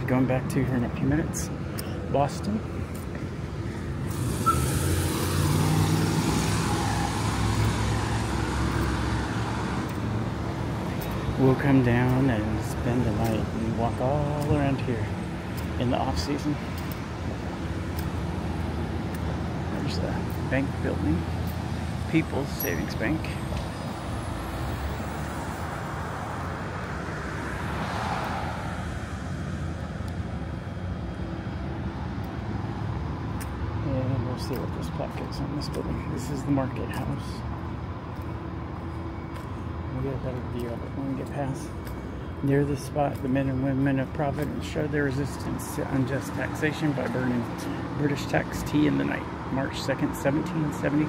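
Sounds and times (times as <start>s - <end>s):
rumble of road traffic: 0.0s - 51.0s
vehicle passing: 3.4s - 12.9s, 14.9s - 34.4s
vehicle driving past: 4.1s - 9.8s.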